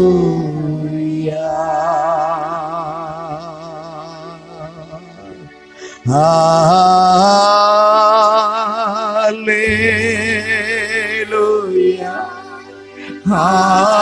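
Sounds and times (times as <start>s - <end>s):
person singing with vibrato: 0.0s - 14.0s
held musical tones: 9.5s - 14.0s.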